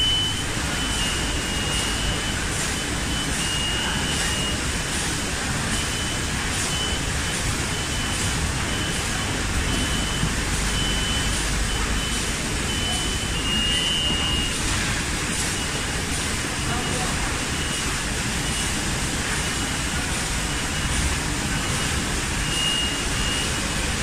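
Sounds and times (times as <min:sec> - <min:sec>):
short high-pitched beeps: 0:00.0 - 0:04.7, 0:07.7 - 0:14.6, 0:16.6 - 0:18.8, 0:21.6 - 0:23.7
packaging machines humming: 0:00.0 - 0:24.0.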